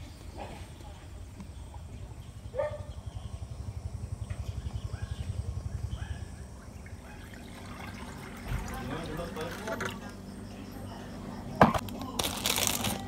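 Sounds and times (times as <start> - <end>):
low throbbing engine: 1.6 - 11.9.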